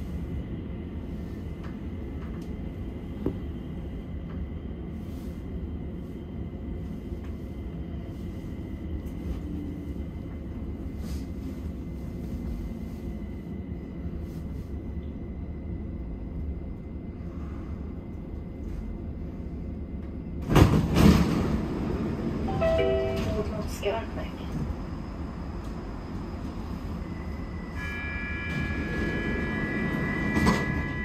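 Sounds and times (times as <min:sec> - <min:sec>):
train rumbling inside carriage: 0:00.0 - 0:31.0
faint high whine: 0:24.9 - 0:31.0.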